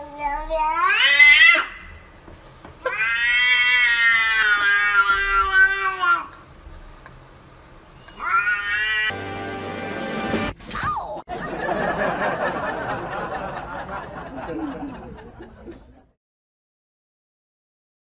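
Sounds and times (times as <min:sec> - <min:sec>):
cat yowling: 0:00.6 - 0:01.8, 0:02.8 - 0:06.3, 0:08.0 - 0:09.2.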